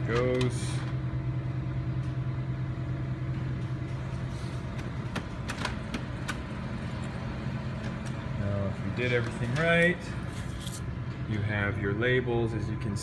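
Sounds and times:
printer humming: 0:00.0 - 0:13.0.

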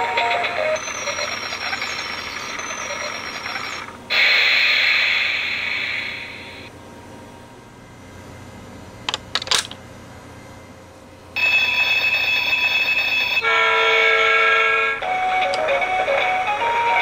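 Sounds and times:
electronic ringing tone: 0:00.0 - 0:04.0, 0:11.4 - 0:14.0
coin clicking on toy train: 0:00.8 - 0:03.6.

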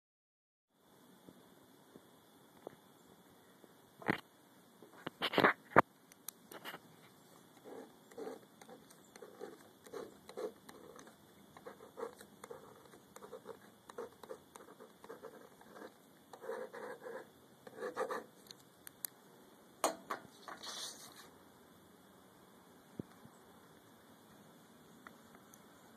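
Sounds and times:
pen writing on paper: 0:07.5 - 0:18.3
paper rustling: 0:20.4 - 0:21.3.

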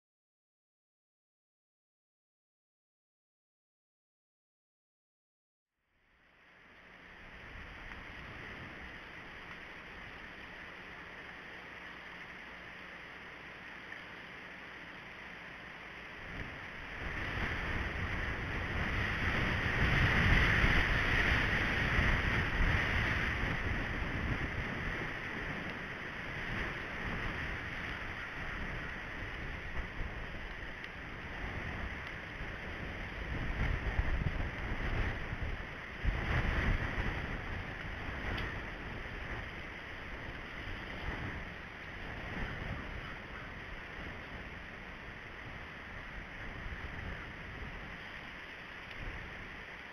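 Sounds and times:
wind gusting on microphone: 0:14.8 - 0:49.9.

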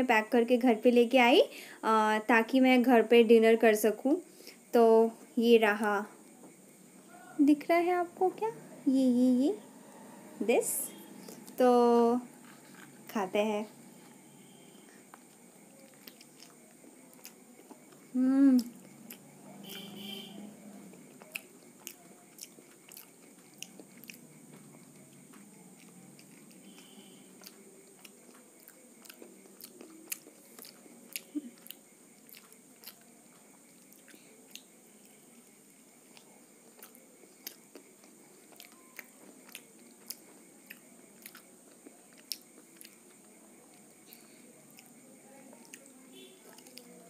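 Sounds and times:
crunchy chewing and biting: 0:12.3 - 0:47.0.

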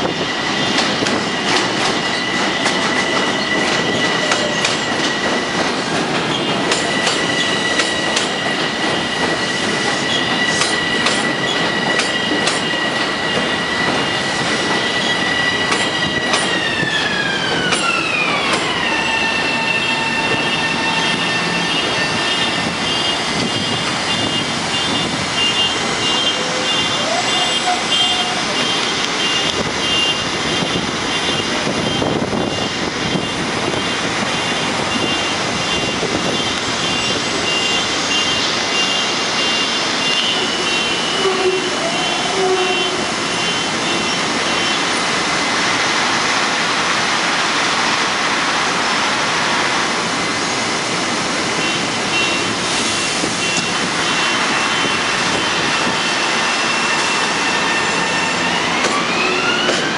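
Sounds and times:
train equipment roaring: 0:00.0 - 0:59.9
train motor whine: 0:53.4 - 0:59.9.

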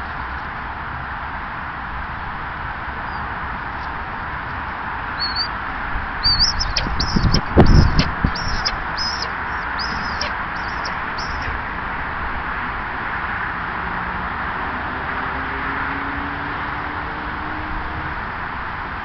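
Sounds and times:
small bird calling high notes: 0:05.2 - 0:05.5, 0:06.2 - 0:11.6
steady rushing background: 0:06.2 - 0:11.7
wings flapping thumps: 0:06.4 - 0:11.5.

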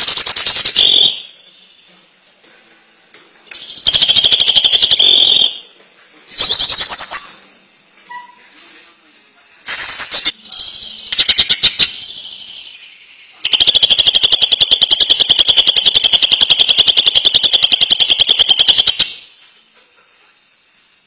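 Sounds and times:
bird singing rapid notes: 0:00.0 - 0:01.4, 0:03.5 - 0:05.6, 0:06.3 - 0:07.5, 0:09.7 - 0:19.3.

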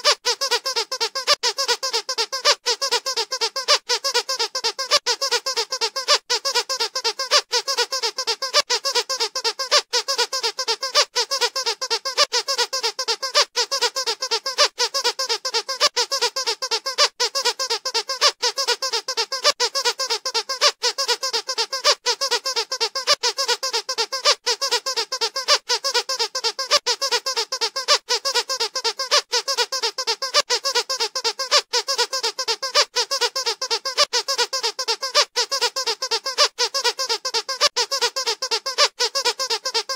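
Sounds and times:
squeaky dog toy squeaking: 0:00.0 - 0:39.9.

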